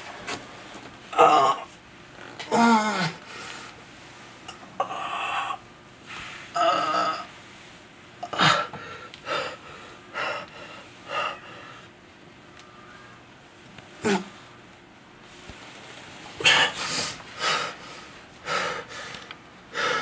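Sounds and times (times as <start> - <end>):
man gasping and breathing hard: 16.4 - 20.0.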